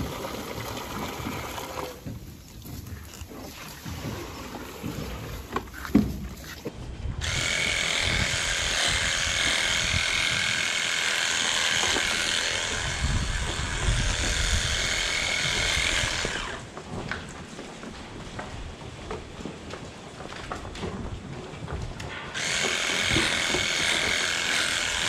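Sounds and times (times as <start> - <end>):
small electric motor whine: 7.2 - 16.7, 22.3 - 25.0.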